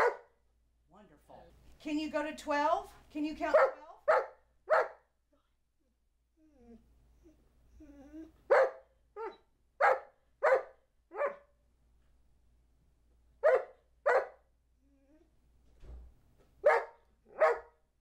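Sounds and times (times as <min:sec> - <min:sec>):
dog barking: 0:00.0 - 0:00.4, 0:03.5 - 0:05.1, 0:08.5 - 0:11.5, 0:13.4 - 0:14.5, 0:16.6 - 0:17.8
dog whining: 0:06.3 - 0:09.5, 0:14.8 - 0:15.5.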